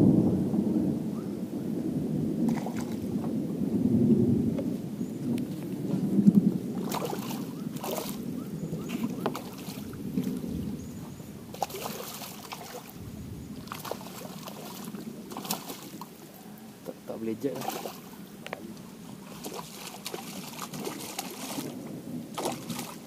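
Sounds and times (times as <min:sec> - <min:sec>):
fish thrashing water splashing: 0:02.5 - 0:03.1, 0:06.7 - 0:10.4, 0:11.5 - 0:16.2, 0:17.4 - 0:18.2, 0:19.0 - 0:23.0.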